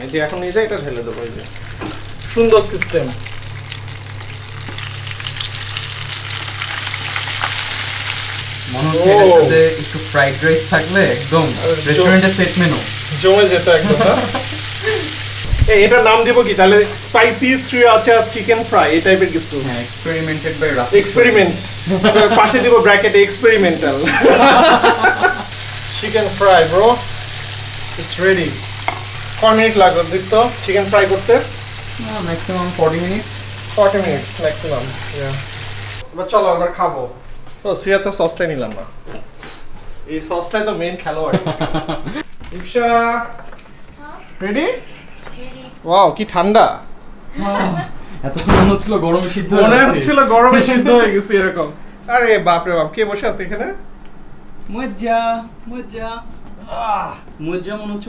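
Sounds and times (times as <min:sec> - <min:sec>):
chicken sizzling in hot oil: 0:00.4 - 0:36.0.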